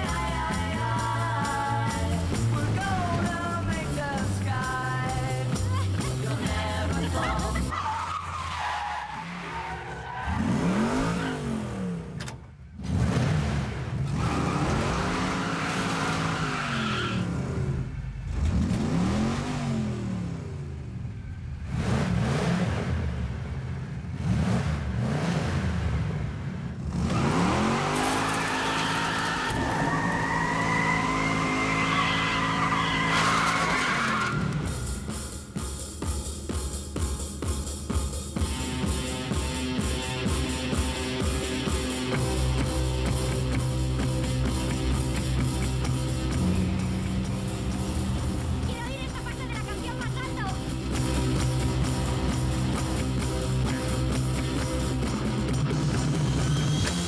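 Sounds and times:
car engine revving hard: 10.3 - 12.2, 12.8 - 20.7, 21.6 - 34.8
tyre squeal: 28.0 - 34.9.

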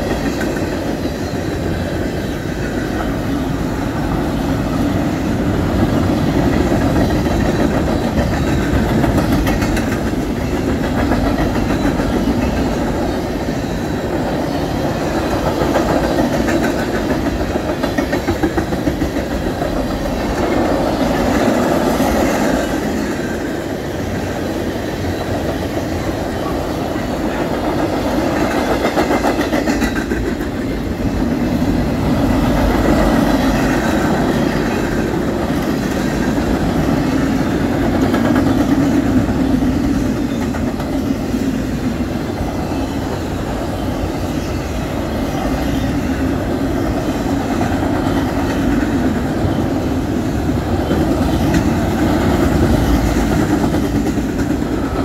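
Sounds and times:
freight train wheels rumbling: 0.0 - 55.0
wheels clacking over rail joints: 0.0 - 55.0.

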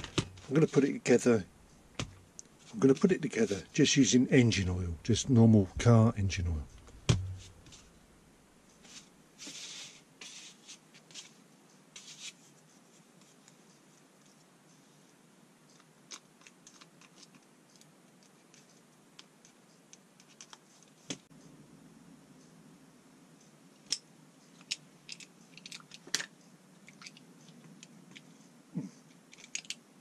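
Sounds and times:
rustling scrapes: 7.3 - 8.0, 8.8 - 11.4.

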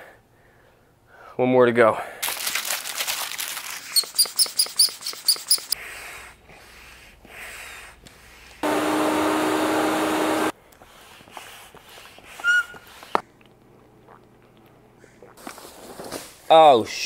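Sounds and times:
hand pump strokes: 3.8 - 5.8
high squeaky chirps: 3.8 - 5.8.

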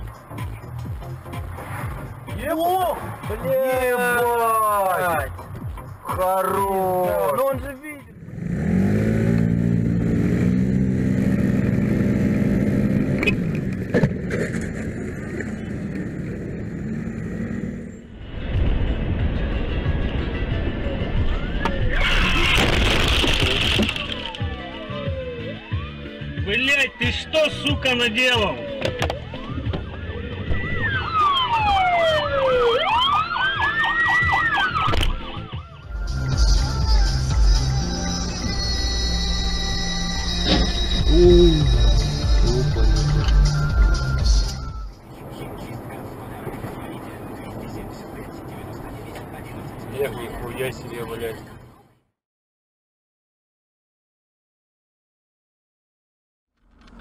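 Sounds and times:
motor scooter engine revving: 8.2 - 14.7
siren wailing: 20.7 - 23.0, 24.0 - 35.9
fast siren warble: 30.1 - 35.8.

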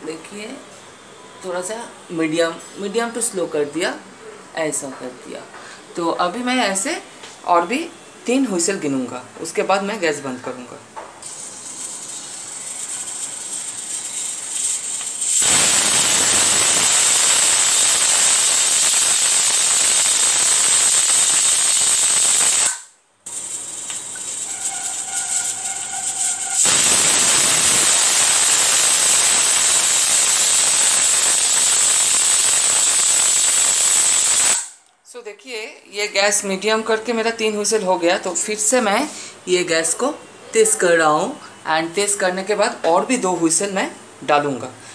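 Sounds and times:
pressure cooker steam hiss: 11.3 - 34.8
pressure cooker whistling: 11.3 - 34.8.

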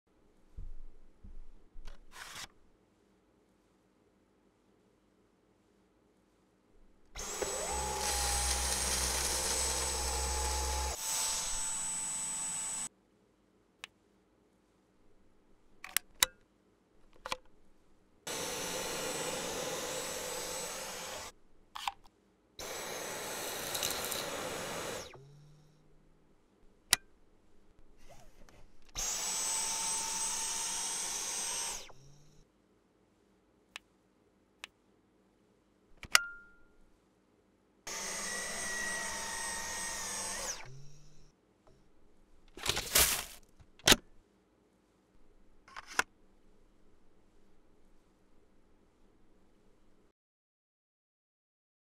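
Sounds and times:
vacuum cleaner motor whine: 7.2 - 12.9, 18.3 - 21.3, 22.6 - 25.6, 29.0 - 32.3, 37.9 - 41.2.

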